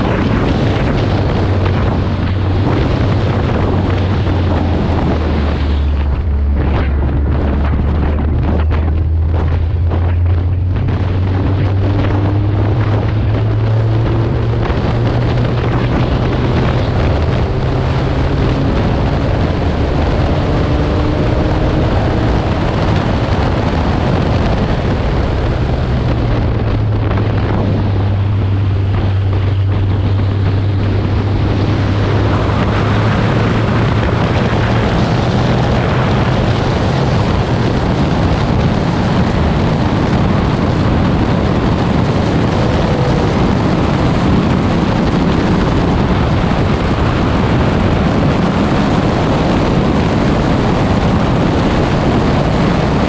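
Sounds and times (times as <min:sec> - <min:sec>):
wind buffeting microphone: 0:00.0 - 0:53.0.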